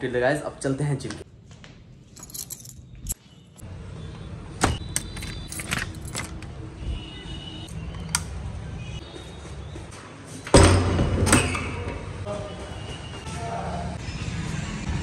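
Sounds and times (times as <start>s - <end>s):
keys jangling: 2.1s - 3.2s, 5.0s - 6.5s
door lock clicking: 4.6s - 6.5s.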